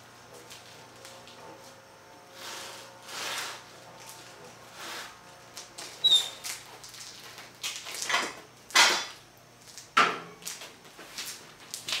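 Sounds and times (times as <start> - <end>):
brief high squeak: 6.0 - 6.4.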